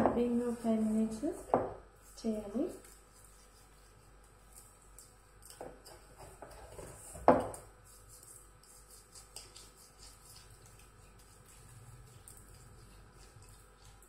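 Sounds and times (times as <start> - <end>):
hands rubbing gritty scrub: 2.0 - 5.2, 7.8 - 14.0.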